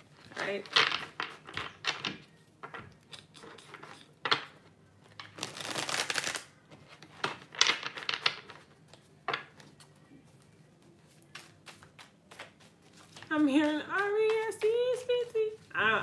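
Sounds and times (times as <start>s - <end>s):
cards being shuffled: 5.1s - 10.0s, 10.9s - 16.0s.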